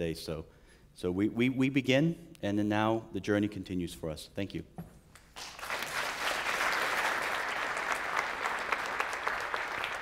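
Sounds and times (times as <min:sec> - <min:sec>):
audience applauding: 0:05.4 - 0:10.0.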